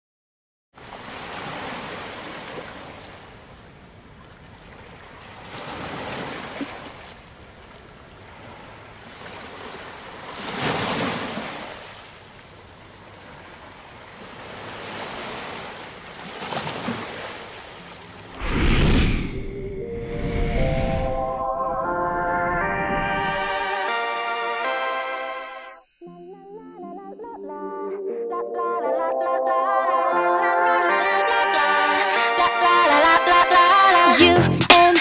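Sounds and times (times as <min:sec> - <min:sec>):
ocean waves washing onto beach: 0:00.8 - 0:03.8.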